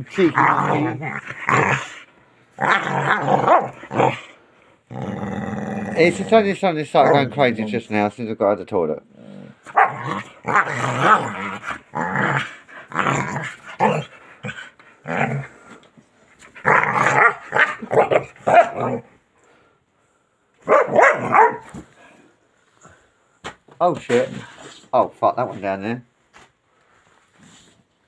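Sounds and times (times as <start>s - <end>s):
dog play-growling: 0.1s - 4.3s, 9.1s - 19.1s
dog barking: 9.7s - 10.1s, 17.1s - 19.0s, 20.6s - 21.7s.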